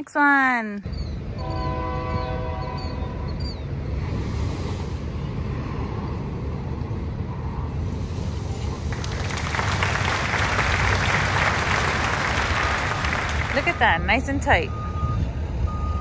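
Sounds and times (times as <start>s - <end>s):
vehicle low hum: 2.8s - 16.0s.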